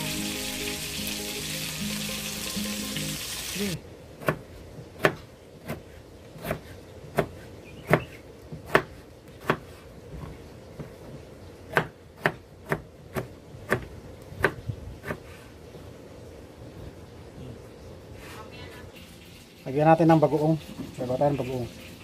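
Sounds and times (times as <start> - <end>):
knife chopping on cutting board: 4.2 - 11.0, 11.7 - 15.4.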